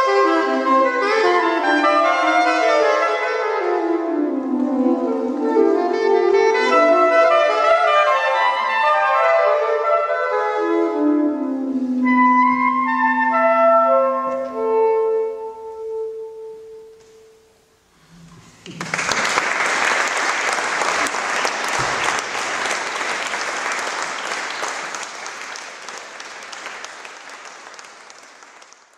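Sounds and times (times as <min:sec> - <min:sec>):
soprano saxophones held notes: 0:00.0 - 0:17.6
audience applause: 0:18.6 - 0:28.9.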